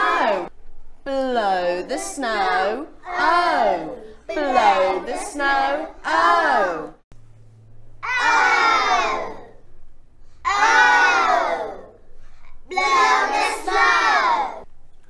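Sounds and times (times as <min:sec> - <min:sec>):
children chanting in unison: 0:00.0 - 0:00.5, 0:08.0 - 0:09.6, 0:10.4 - 0:12.0, 0:12.6 - 0:14.6.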